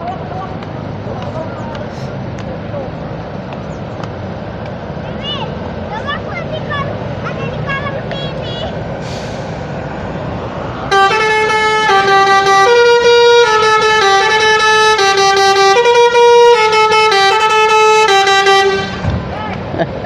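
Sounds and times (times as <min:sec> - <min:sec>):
bus engine rumble: 0:00.0 - 0:20.0
multi-tone bus horn playing a tune: 0:10.9 - 0:19.1.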